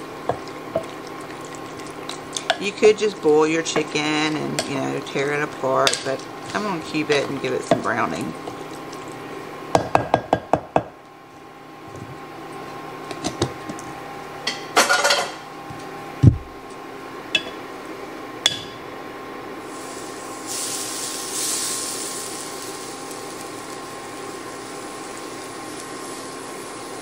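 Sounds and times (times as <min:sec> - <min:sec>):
steady electric hum: 0:00.0 - 0:27.0
utensils clinking against bowl and skillet: 0:02.3 - 0:08.2, 0:14.5 - 0:15.4
dull thump: 0:16.2 - 0:16.5
chicken sizzling in skillet: 0:19.6 - 0:27.0.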